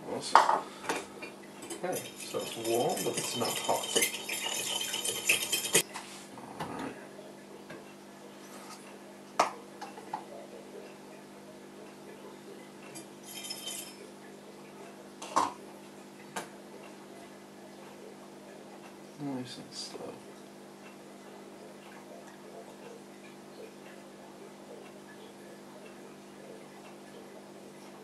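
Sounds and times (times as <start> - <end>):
glassware clinking: 0.4 - 5.8, 13.0 - 14.1
spoon clinking against glass jug: 1.6 - 5.8, 13.0 - 14.1.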